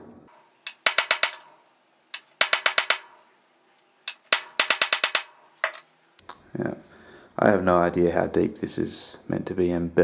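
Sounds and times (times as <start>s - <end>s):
mallet tapping metal spike into wood: 0.6s - 3.2s, 4.1s - 5.8s.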